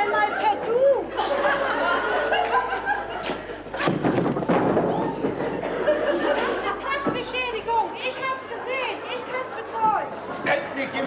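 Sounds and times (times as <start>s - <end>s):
audience laughing: 0.0s - 4.1s, 5.4s - 6.9s
thumps and scuffling: 3.2s - 5.7s.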